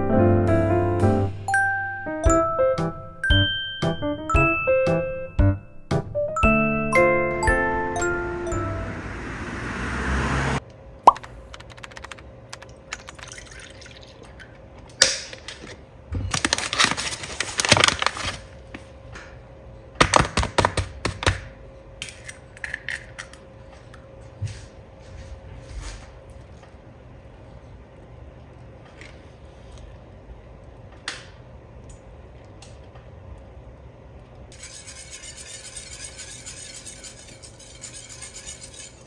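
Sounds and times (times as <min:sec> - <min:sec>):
egg cracking: 0:11.1 - 0:14.6
liquid pouring into bowl: 0:12.9 - 0:14.5
splashes and drips: 0:12.9 - 0:14.5.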